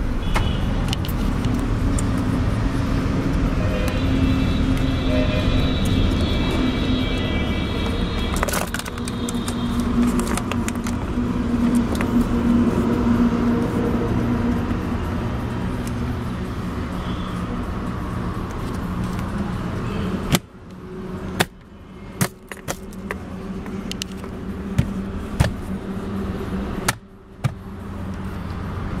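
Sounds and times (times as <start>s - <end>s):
car engine humming: 0.0s - 29.0s
sharp clicks and knocks: 7.8s - 12.3s, 20.2s - 25.8s, 26.8s - 28.6s.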